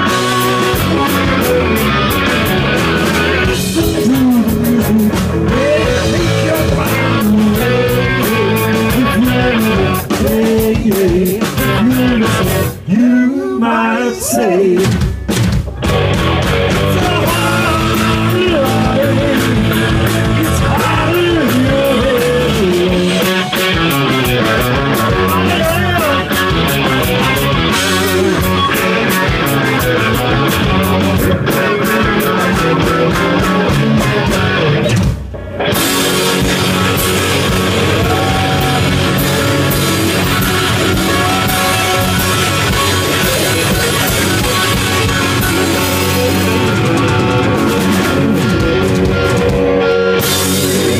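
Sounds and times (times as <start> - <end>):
drum kit: 0.0 - 13.0, 14.6 - 50.9
distorted electric guitars: 0.0 - 50.9
rock band playing: 0.0 - 50.9.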